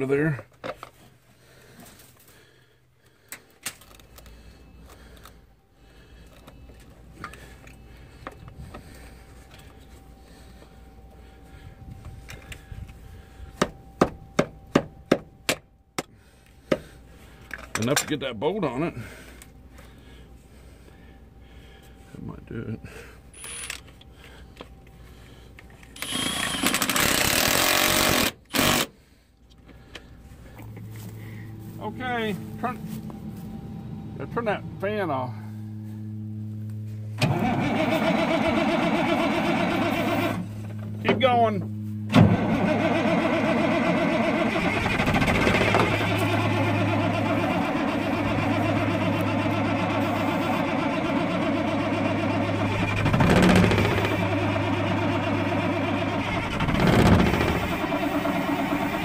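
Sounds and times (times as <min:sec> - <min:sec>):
steady low hum: 0:00.0 - 0:59.0
power tool hammering rattle: 0:23.4 - 0:23.9, 0:25.9 - 0:29.0, 0:37.2 - 0:59.0.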